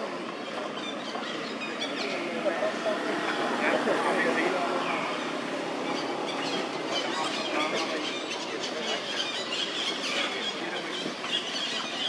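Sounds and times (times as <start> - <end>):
busy outdoor background: 0.0 - 12.0.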